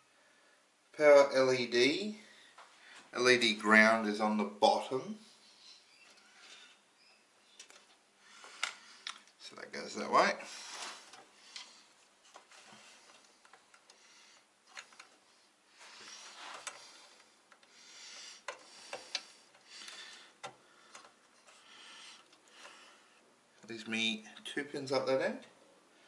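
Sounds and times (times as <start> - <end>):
soft rustling of wires: 4.9 - 26.0
plastic plugs clicking onto pins: 18.4 - 21.6.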